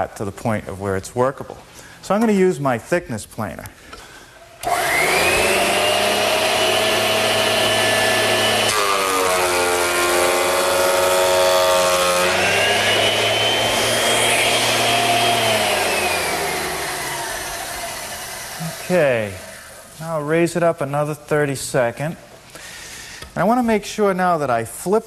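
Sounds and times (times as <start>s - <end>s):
board cutting through planer: 4.6s - 19.6s
thickness planer whining: 4.6s - 20.0s.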